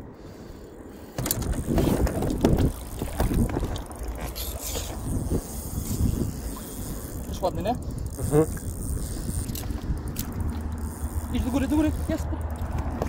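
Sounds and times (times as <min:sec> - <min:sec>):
wind rumbling on microphone: 0:00.0 - 0:13.0
knocks and handling noise: 0:01.2 - 0:04.4.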